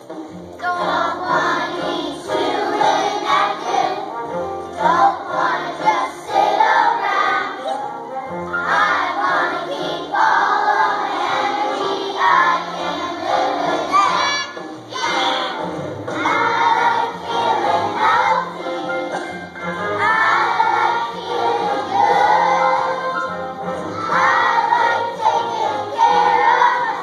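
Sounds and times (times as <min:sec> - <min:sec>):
children singing in unison: 0:00.0 - 0:27.0
musical accompaniment with bass: 0:00.0 - 0:27.0.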